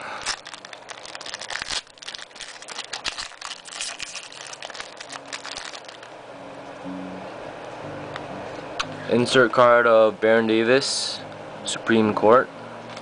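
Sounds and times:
foil wrapper crinkling and tearing: 0:00.1 - 0:06.2.

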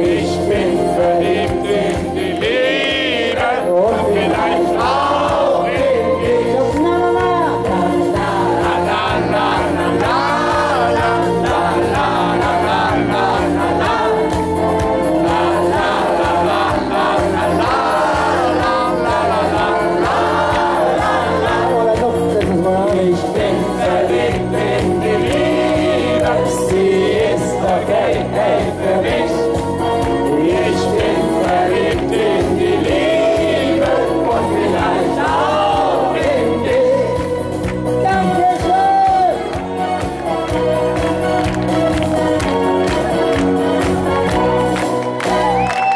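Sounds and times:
music with steady beat: 0:00.0 - 0:45.9
man singing into microphone: 0:21.3 - 0:23.8.

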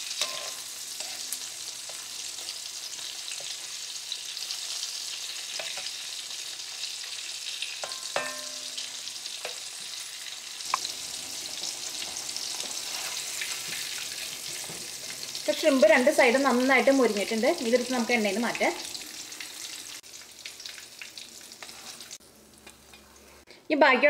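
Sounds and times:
shrimp sizzling in hot oil: 0:00.0 - 0:23.5
metal spoon clinking on pan: 0:00.2 - 0:01.2, 0:05.5 - 0:06.0, 0:07.7 - 0:09.6.

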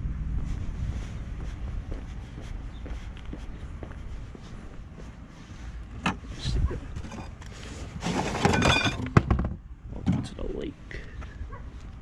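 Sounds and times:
low rumble: 0:00.0 - 0:05.8
clatter of wood and plastic: 0:08.0 - 0:10.3.

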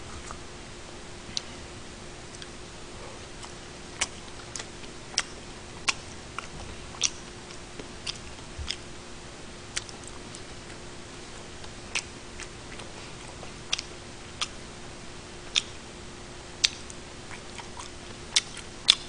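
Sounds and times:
faint steady hum: 0:00.0 - 0:19.0
chewing and mouth smacks: 0:01.3 - 0:01.6, 0:02.2 - 0:02.6, 0:03.2 - 0:08.9, 0:09.7 - 0:10.8, 0:11.5 - 0:14.6, 0:15.4 - 0:15.8, 0:16.6 - 0:19.0.

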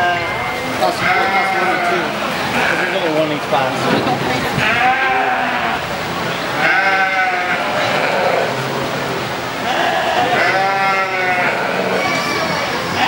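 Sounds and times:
lambs bleating: 0:01.0 - 0:02.0, 0:06.6 - 0:08.4, 0:09.7 - 0:12.0.

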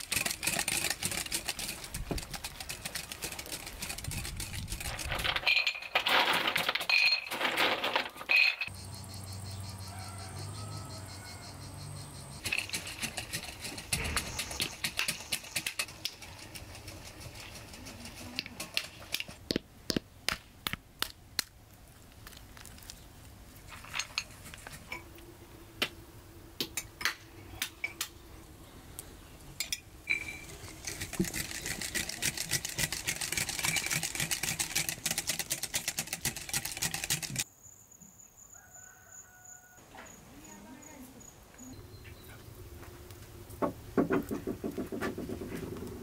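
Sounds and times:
eggs whisked in bowl: 0:00.0 - 0:05.0, 0:12.4 - 0:19.0, 0:30.2 - 0:37.4.

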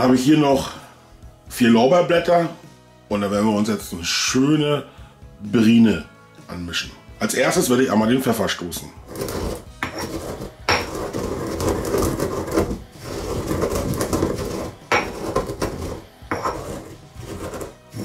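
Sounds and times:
pestle grinding in stone mortar: 0:09.1 - 0:18.0
stone knocking on stone: 0:09.8 - 0:11.1, 0:13.7 - 0:16.8.

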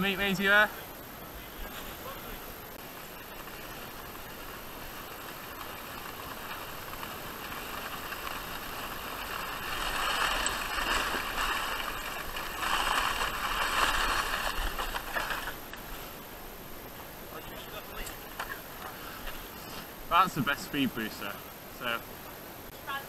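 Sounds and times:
scraping rush over packed snow: 0:01.4 - 0:16.3.

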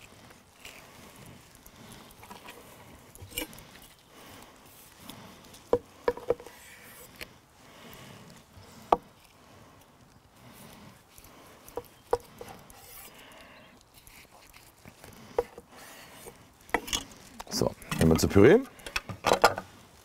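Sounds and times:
knife tapping wooden board: 0:05.7 - 0:06.4.

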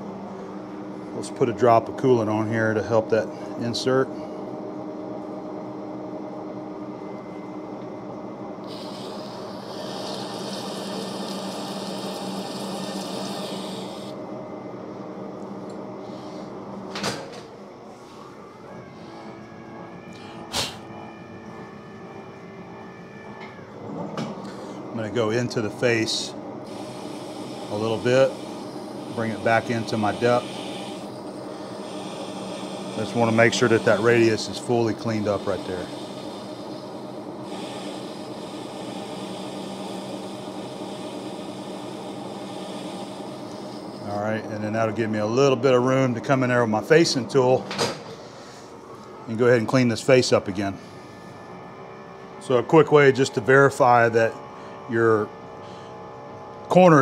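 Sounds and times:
lathe humming: 0:00.0 - 0:16.8, 0:17.7 - 0:47.6, 0:48.3 - 0:57.0
hiss of tool cutting metal: 0:08.7 - 0:14.1, 0:26.7 - 0:34.3, 0:37.5 - 0:44.0.

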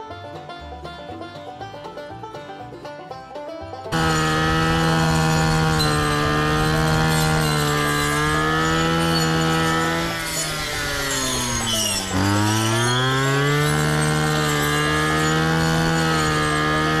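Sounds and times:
plucked-string music: 0:00.0 - 0:17.0
blade cutting tall grass: 0:03.9 - 0:17.0
brush cutter engine running: 0:03.9 - 0:17.0.

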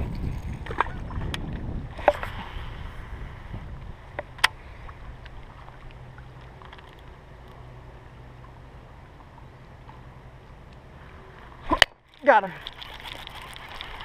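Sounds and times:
wind rumble on microphone: 0:00.0 - 0:06.4.

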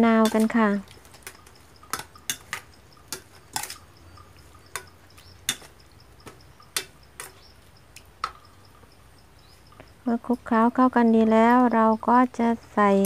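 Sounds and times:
metal ladle clinking on bowl: 0:00.2 - 0:05.7.

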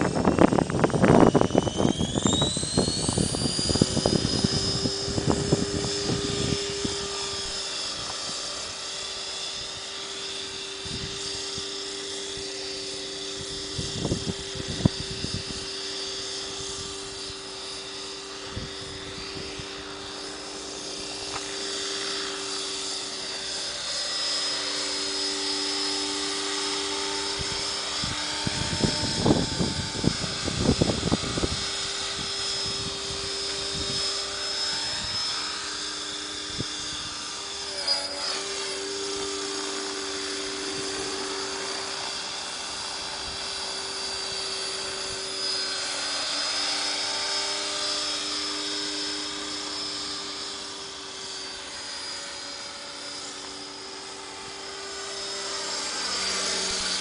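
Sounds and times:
wind rumble on microphone: 0:00.0 - 0:08.1, 0:10.8 - 0:11.7, 0:13.4 - 0:15.7, 0:18.4 - 0:19.8, 0:27.3 - 0:35.3
electric helicopter motor whine: 0:00.0 - 0:57.0
rotor hum: 0:00.0 - 0:57.0.

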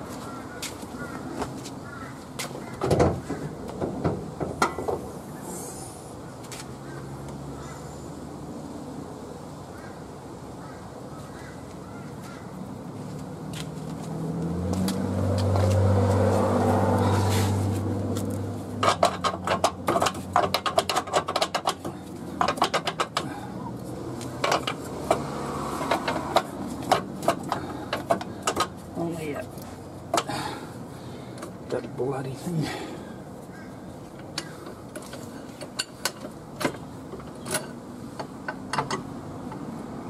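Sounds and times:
low engine hum: 0:11.7 - 0:20.6, 0:21.8 - 0:40.0.

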